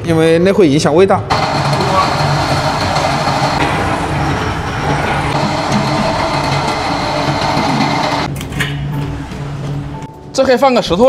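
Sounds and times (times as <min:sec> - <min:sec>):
electric chain hoist whirring: 0:01.3 - 0:08.3
low hum: 0:01.3 - 0:08.4.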